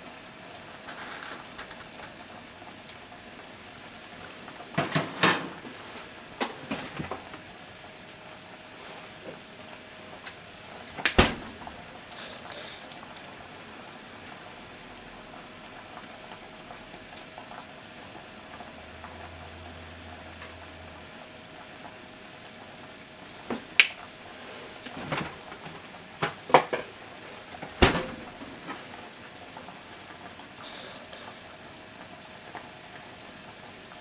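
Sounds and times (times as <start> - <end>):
low hiss: 5.5 - 15.2
kitchenware clicking and knocking: 27.7 - 28.4.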